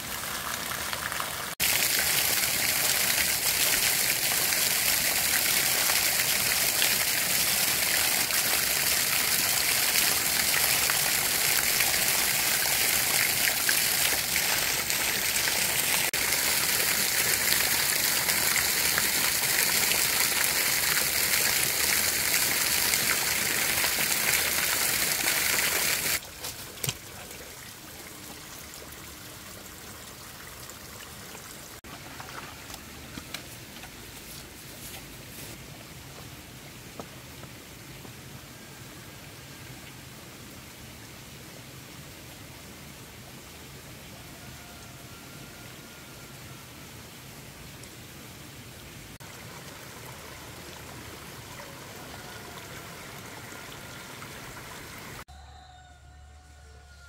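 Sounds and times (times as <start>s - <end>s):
stream water rushing: 0.0s - 33.8s, 49.1s - 55.2s.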